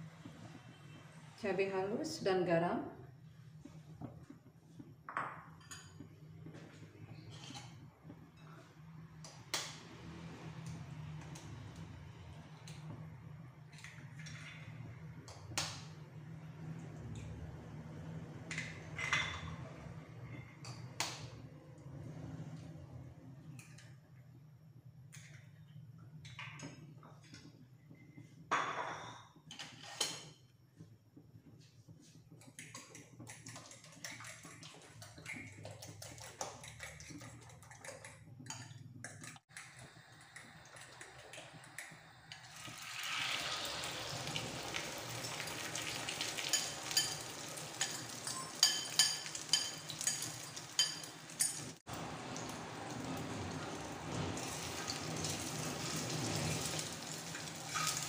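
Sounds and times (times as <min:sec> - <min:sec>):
sizzling with pops and crackles: 0:00.0 - 0:02.5, 0:03.2 - 0:19.6, 0:20.6 - 0:22.0, 0:23.2 - 0:58.0
spoon clinking and scraping in bowl: 0:46.4 - 0:51.7.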